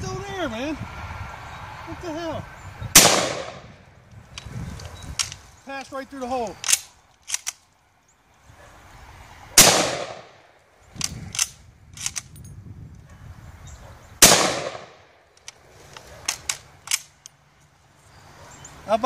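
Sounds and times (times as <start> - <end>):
rifle shots echoing: 2.9 - 3.7, 9.6 - 10.4, 14.2 - 15.1
rifle bolt clicking: 6.6 - 7.6, 11.0 - 12.3, 15.4 - 17.4.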